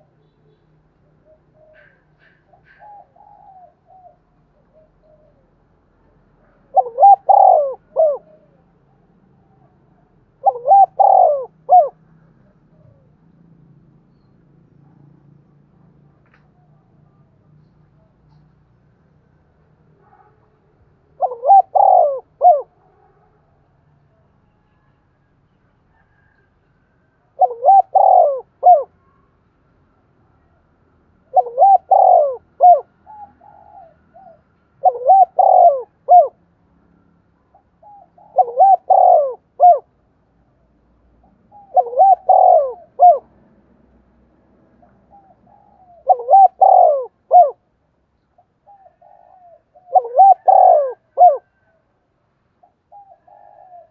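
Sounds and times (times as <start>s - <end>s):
dove cooing: 1.0s - 13.2s, 21.2s - 22.8s, 27.4s - 29.0s, 31.2s - 36.4s, 37.5s - 39.9s, 41.3s - 43.4s, 44.8s - 47.6s, 48.4s - 51.9s, 52.6s - 53.9s.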